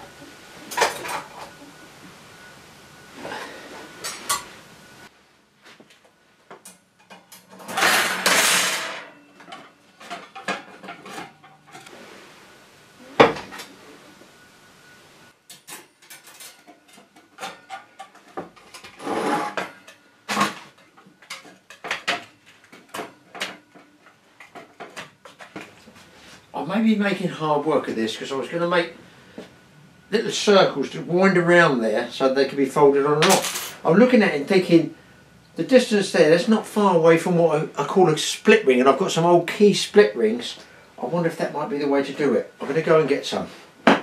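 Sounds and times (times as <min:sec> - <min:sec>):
metal oven shelf clinking and rattling: 0:15.5 - 0:19.0.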